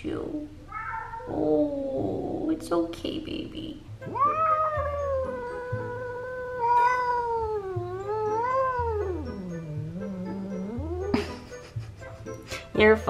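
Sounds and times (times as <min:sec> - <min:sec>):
cat yowling and growling: 0:00.7 - 0:02.3, 0:04.1 - 0:11.5.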